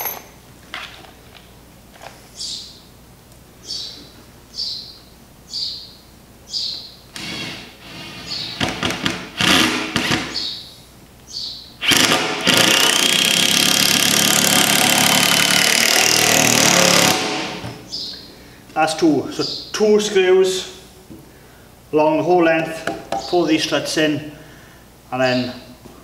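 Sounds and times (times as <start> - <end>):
birds chirping: 2.4 - 2.9, 3.6 - 7.1, 8.2 - 8.7, 10.3 - 11.8, 17.8 - 20.0, 23.1 - 23.6
power drill driving a screw: 7.2 - 8.4, 9.4 - 10.3, 11.8 - 17.6.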